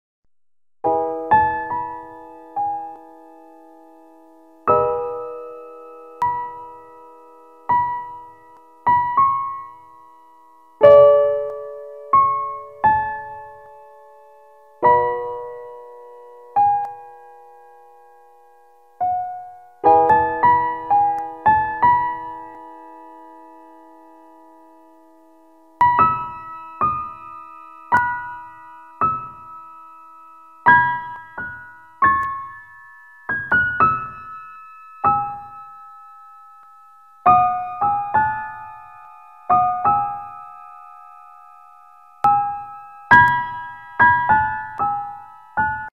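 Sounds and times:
slow piano music: 0:00.8 - 0:45.9.

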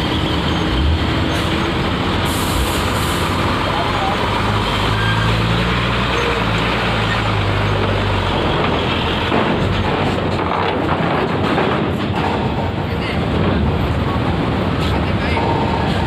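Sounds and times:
diesel truck engine passing: 0:00.0 - 0:10.4
vehicle noise: 0:00.0 - 0:16.0.

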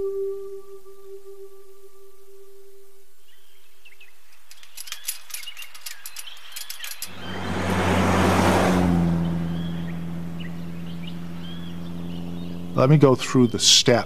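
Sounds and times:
birds chirping: 0:03.2 - 0:14.0
quick ticks: 0:04.3 - 0:07.2
car approaching: 0:04.3 - 0:14.0.

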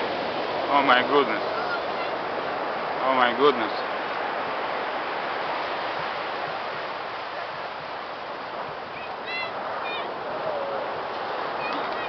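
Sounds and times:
ocean surf breaking: 0:00.0 - 0:12.0.

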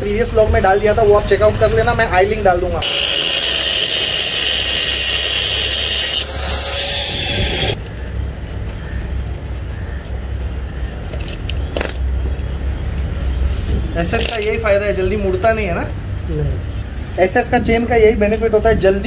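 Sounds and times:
angle grinder cutting metal: 0:02.8 - 0:07.8.

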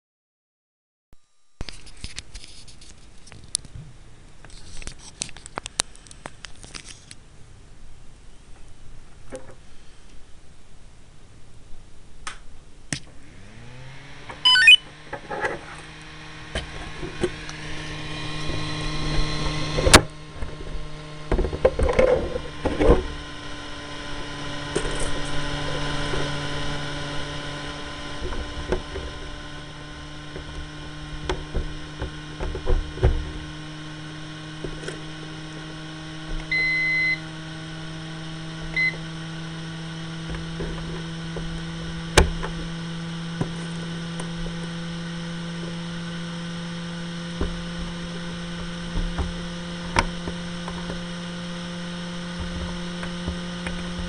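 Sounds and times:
electric motor humming: 0:13.1 - 0:54.0
electronic beep: 0:14.4 - 0:14.9, 0:36.5 - 0:37.2, 0:38.8 - 0:39.0.

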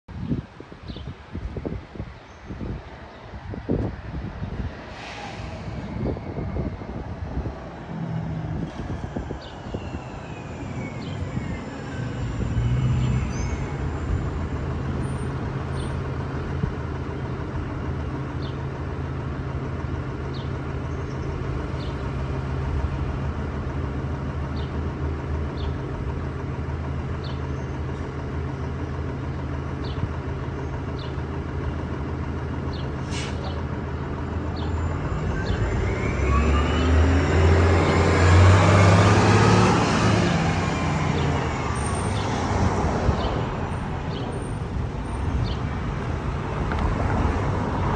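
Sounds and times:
bus engine running: 0:00.1 - 0:47.9
short air hiss: 0:04.9 - 0:05.9, 0:33.0 - 0:33.5.

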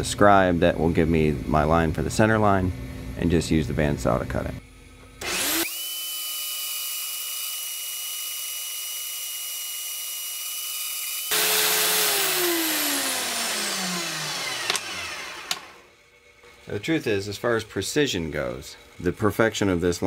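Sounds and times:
bandsaw motor whining: 0:05.2 - 0:16.1.

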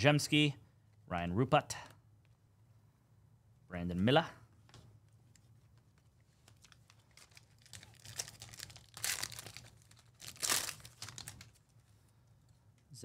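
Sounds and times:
plastic wrapper crinkling: 0:05.3 - 0:11.8.

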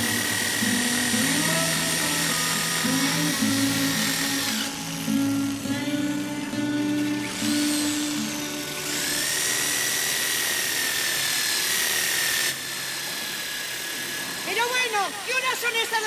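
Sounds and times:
electric power tool whining: 0:00.0 - 0:16.0.

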